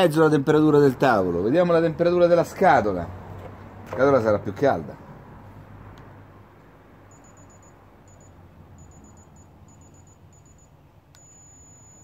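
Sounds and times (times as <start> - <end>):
thermometer beeping: 7.1 - 12.0.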